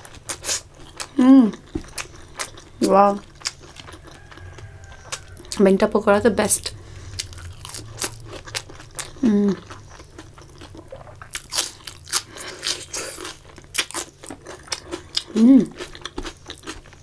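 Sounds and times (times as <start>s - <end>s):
person chewing food: 0.0s - 5.9s, 6.7s - 17.0s
crisp crunching of onion: 7.1s - 17.0s
person humming: 9.2s - 9.6s, 15.3s - 15.8s.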